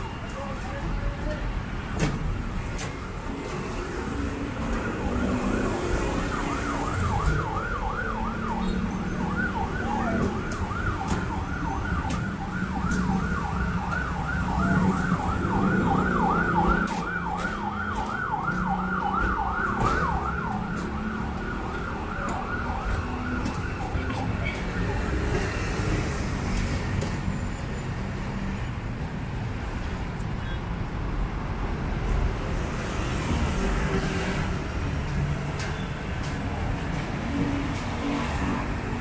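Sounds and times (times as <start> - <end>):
street traffic: 0.0 - 39.0
siren yelping: 4.6 - 26.2.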